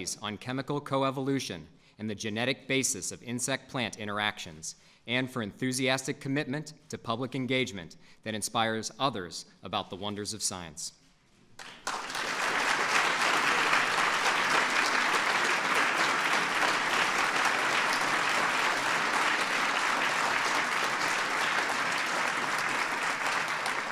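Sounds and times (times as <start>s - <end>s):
audience applauding: 11.6s - 23.9s.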